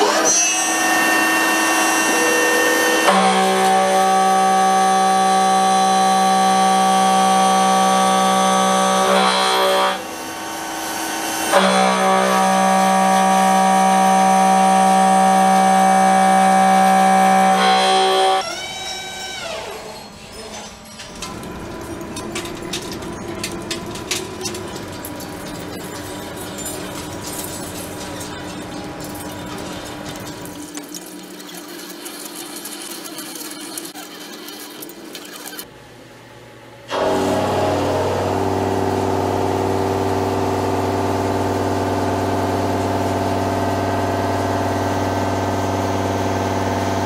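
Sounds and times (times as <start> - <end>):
milling machine cutting steel: 0.0 - 35.7.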